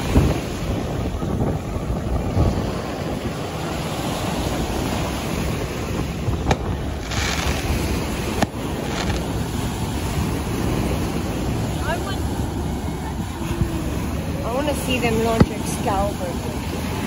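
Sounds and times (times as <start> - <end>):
ocean surf breaking on sand: 0.0 - 17.0
wind rumbling on microphone: 0.0 - 17.0.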